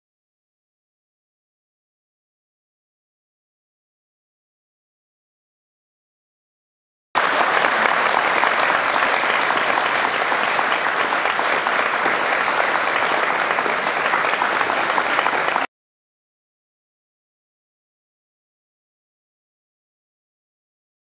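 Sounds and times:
crowd applauding: 7.2s - 15.7s.

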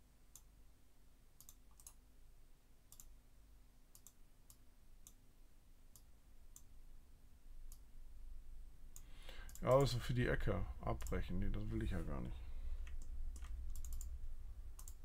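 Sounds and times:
faint computer mouse clicks: 1.4s - 2.0s, 2.9s - 3.1s, 3.9s - 5.2s, 12.8s - 14.2s, 14.8s - 15.0s.

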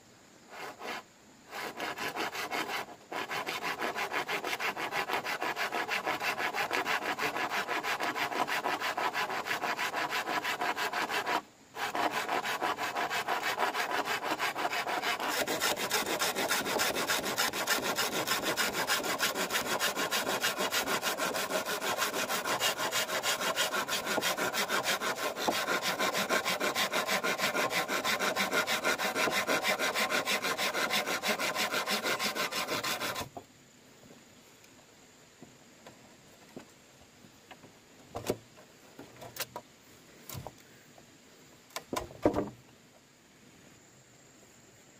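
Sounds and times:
hand saw cutting bamboo: 0.5s - 33.3s.

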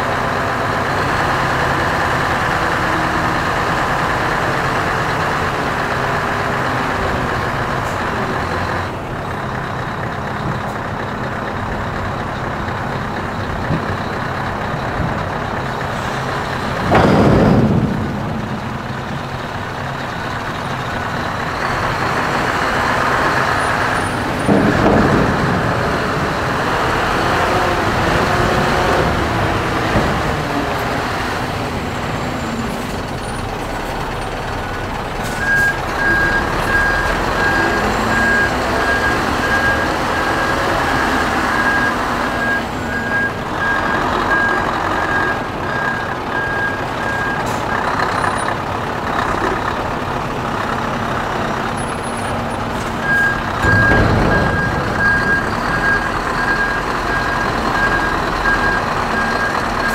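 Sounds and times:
container pulled aboard: 0.0s - 59.9s
truck diesel engine running: 0.0s - 59.9s
reversing alarm beeping: 35.3s - 48.5s, 53.0s - 59.9s.

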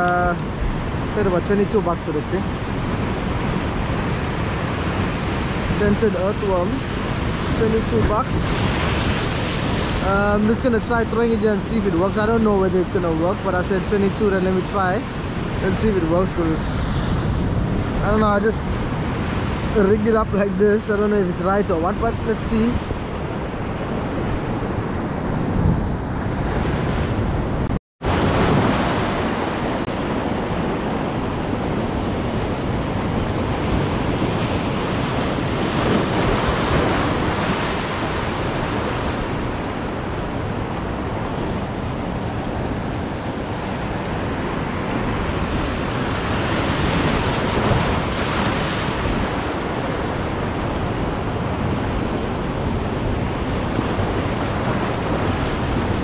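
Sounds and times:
wind on microphone: 0.0s - 56.0s
surf breaking over rocks: 28.0s - 52.3s.

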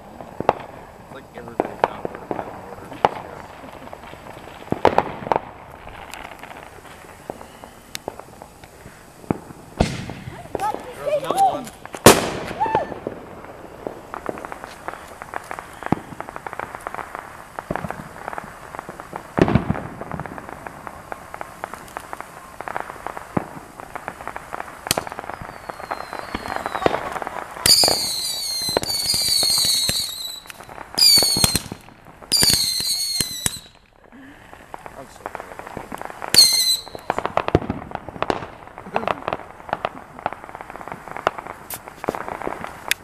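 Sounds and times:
firework fountain crackling: 0.0s - 43.0s
whistling fireworks shrieks: 0.0s - 43.0s.

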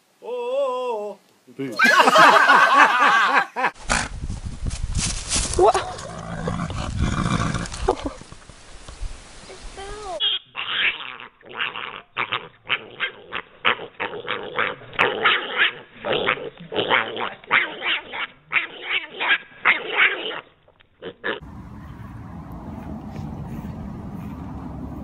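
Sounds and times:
pig squealing and grunting: 10.2s - 21.4s.

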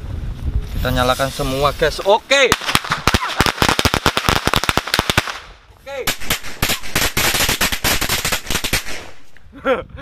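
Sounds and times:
firecrackers banging: 1.9s - 9.3s.

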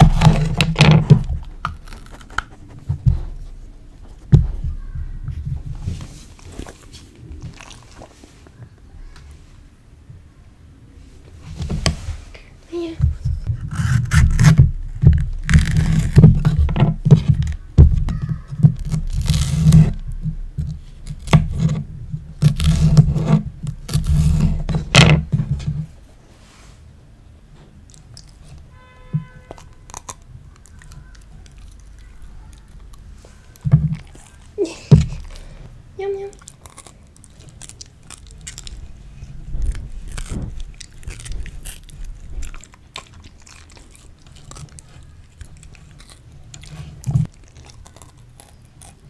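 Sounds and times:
bell pepper cracking and tearing: 0.0s - 2.6s, 13.6s - 16.6s, 17.4s - 21.7s, 29.5s - 34.4s, 36.3s - 49.0s.

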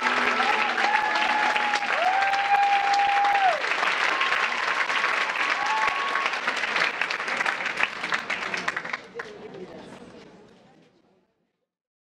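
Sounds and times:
cheering shouts: 0.0s - 6.6s
audience clapping: 0.0s - 9.9s.

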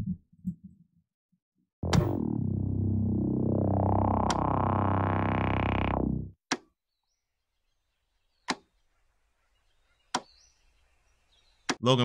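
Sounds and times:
synth keyboard music: 1.8s - 6.4s.

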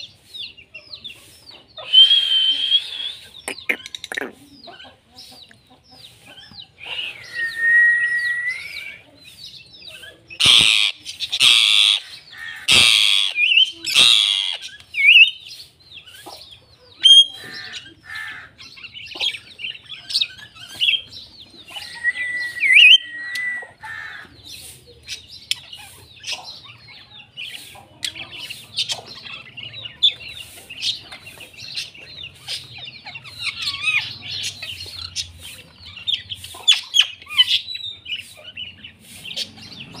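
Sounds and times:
small parrots chirping: 0.0s - 8.8s, 9.4s - 40.0s
parrots squawking: 1.8s - 4.9s, 10.4s - 15.3s, 17.0s - 21.0s, 21.7s - 24.4s, 31.7s - 39.7s.

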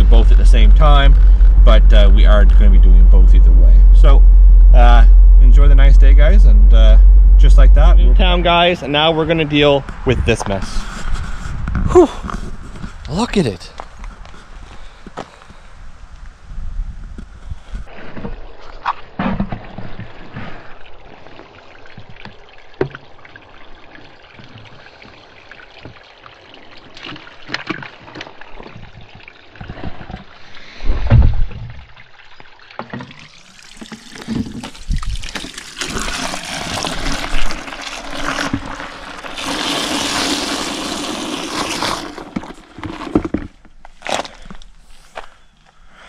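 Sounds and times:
loud low thump: 0.0s - 9.1s, 30.9s - 31.8s
hose water pouring into bucket: 32.8s - 43.5s.

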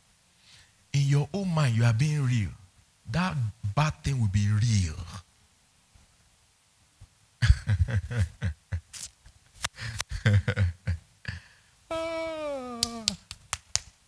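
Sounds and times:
man's broken voice: 1.0s - 5.2s.

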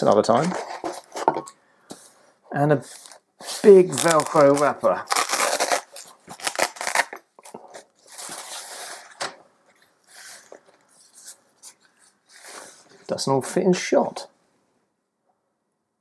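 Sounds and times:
velcro ripping apart: 3.6s - 7.3s.

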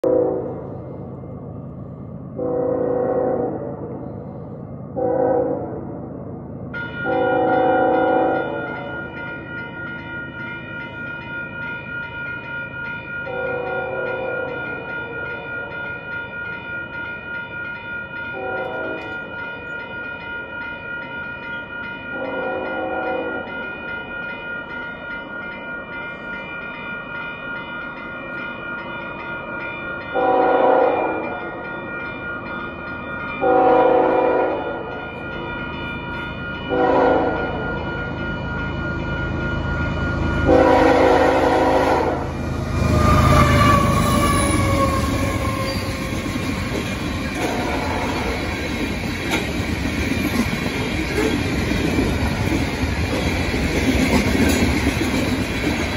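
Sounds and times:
locomotive horn blasts: 2.4s - 3.6s, 5.0s - 5.6s, 7.0s - 8.6s, 18.4s - 19.2s, 30.2s - 31.2s, 33.4s - 34.7s, 36.7s - 37.6s, 40.5s - 44.7s
crossing warning bell ringing: 6.6s - 55.9s
train rumble: 29.2s - 55.9s.

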